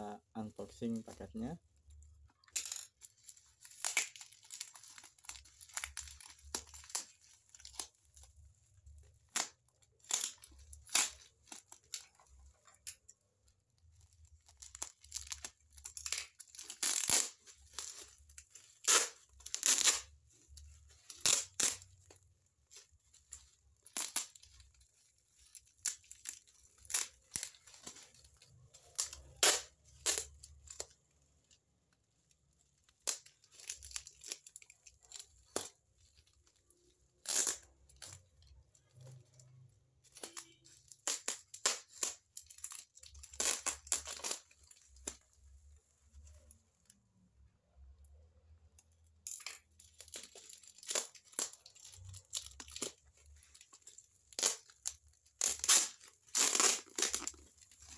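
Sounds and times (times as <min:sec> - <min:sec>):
packing tape ripping: 0:02.5 - 0:07.9, 0:09.2 - 0:12.1, 0:14.4 - 0:22.1, 0:22.7 - 0:30.9, 0:37.2 - 0:38.2, 0:40.1 - 0:45.2, 0:50.0 - 0:57.9.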